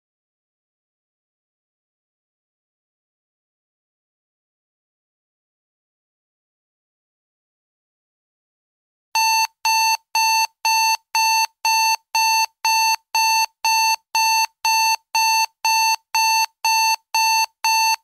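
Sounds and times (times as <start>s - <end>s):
high-pitched timer alarm beeps: 9.2s - 18.0s.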